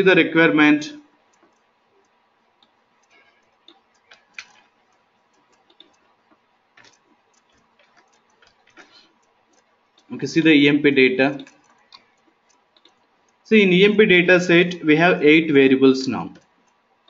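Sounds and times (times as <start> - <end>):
mouse and keyboard clicks: 2.6 - 10.1, 11.3 - 13.4.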